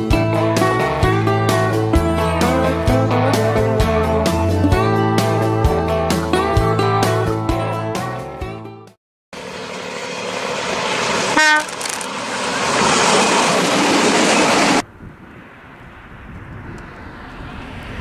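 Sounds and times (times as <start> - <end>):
outdoor background noise: 9.4 - 18.0
train rumbling past: 9.4 - 18.0
train horn toot: 11.3 - 11.8.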